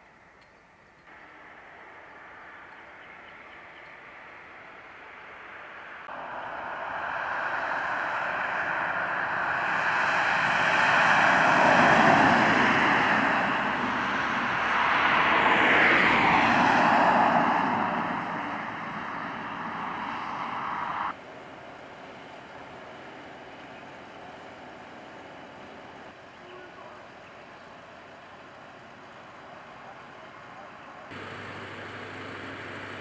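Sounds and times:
vehicles driving past: 0.4 - 33.0.

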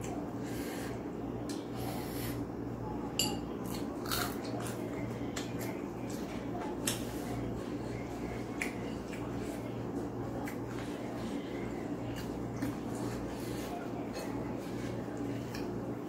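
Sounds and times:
person chewing: 3.6 - 4.8.

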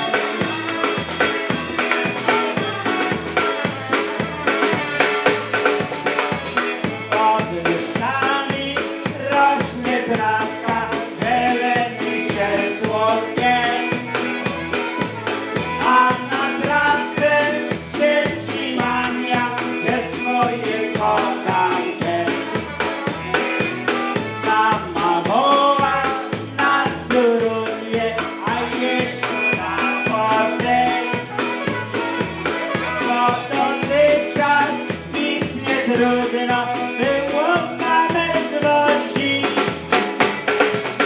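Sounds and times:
concertina melody: 0.0 - 7.4, 12.4 - 17.0, 28.9 - 34.6
drum kit polka beat: 0.0 - 41.0.

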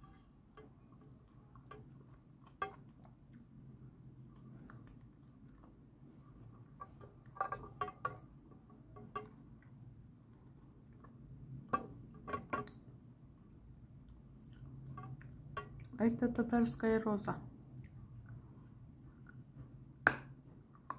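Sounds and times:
soft chewing: 0.0 - 11.4, 12.7 - 16.0.

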